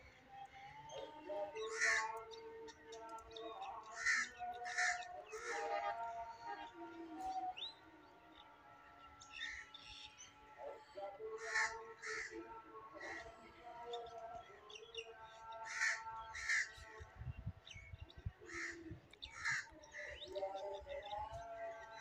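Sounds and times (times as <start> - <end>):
crows cawing: 1.6 - 2.2, 3.9 - 5.7, 11.4 - 12.4, 15.6 - 16.8, 18.5 - 20.2.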